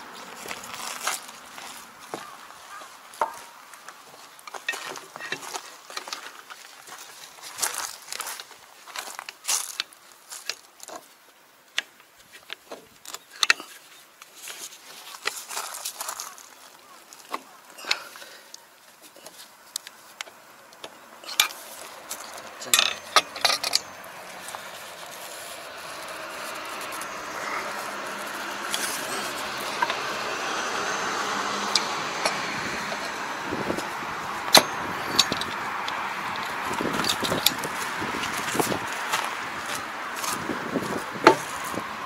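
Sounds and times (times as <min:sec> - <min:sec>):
steady mechanical noise: 0:19.8 - 0:42.0.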